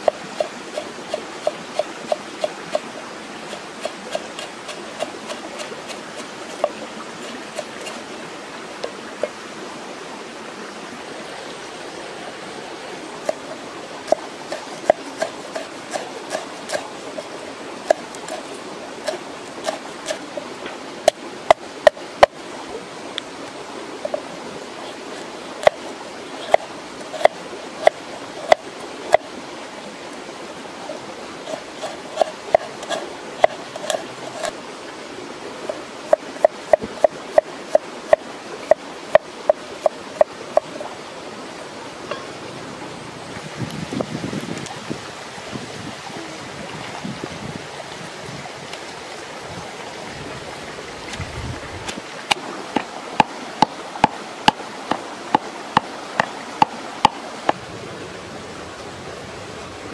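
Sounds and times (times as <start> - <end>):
knife chopping on wooden board: 26.5 - 29.2, 31.8 - 34.5.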